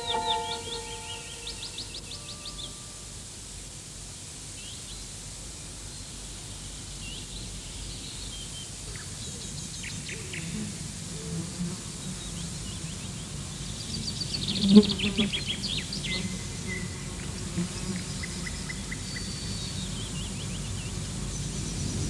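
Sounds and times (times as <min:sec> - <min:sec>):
background music: 0:00.0 - 0:02.9
birds chirping: 0:00.0 - 0:02.9
steady background hiss: 0:00.0 - 0:22.0.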